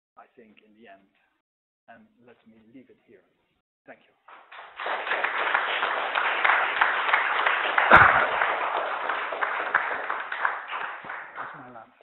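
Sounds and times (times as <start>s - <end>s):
audience applauding: 4.3s - 11.8s.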